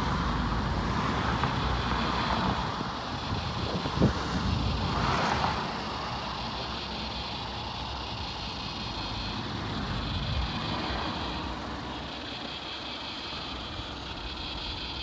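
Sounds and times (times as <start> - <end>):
wind buffeting microphone: 2.1 - 6.4.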